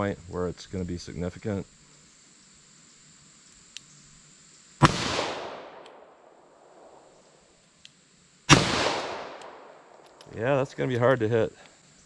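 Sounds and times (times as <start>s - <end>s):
revolver shots with echo: 4.8s - 6.0s, 8.5s - 9.8s.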